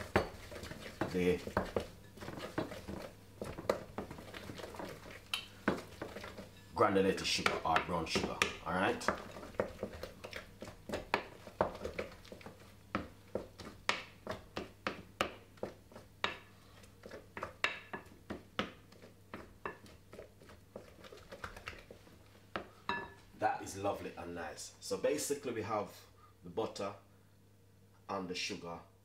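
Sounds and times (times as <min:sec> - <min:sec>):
wooden spoon scraping glass bowl: 0:00.0 - 0:12.7.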